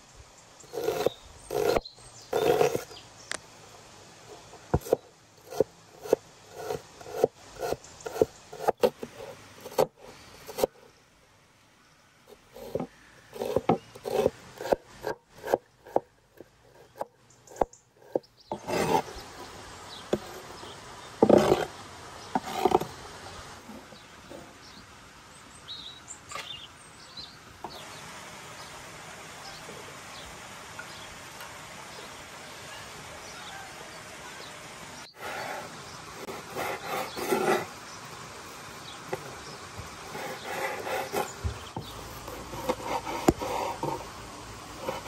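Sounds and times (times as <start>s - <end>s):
cleaver chopping on wooden board: 0.8s - 1.8s, 4.7s - 9.0s, 9.6s - 9.9s, 12.6s - 16.0s.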